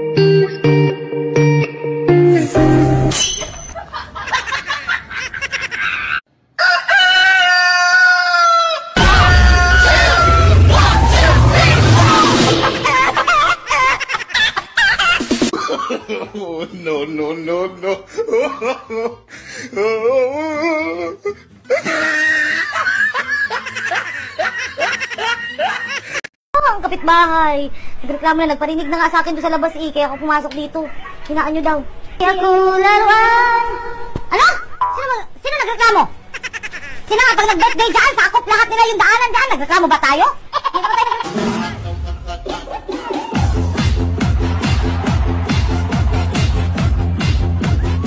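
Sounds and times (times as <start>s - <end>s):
music: 0.0s - 3.2s, 9.0s - 13.3s, 15.2s - 15.5s, 41.3s - 48.0s
person laughing: 3.8s - 6.2s, 12.2s - 26.3s, 36.3s - 37.9s, 40.6s - 43.5s
high crowing cry: 5.7s - 14.0s.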